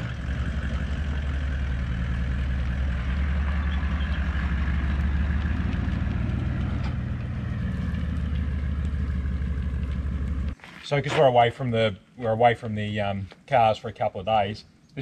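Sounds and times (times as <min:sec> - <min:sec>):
vehicle engine at low revs: 0:00.0 - 0:10.6.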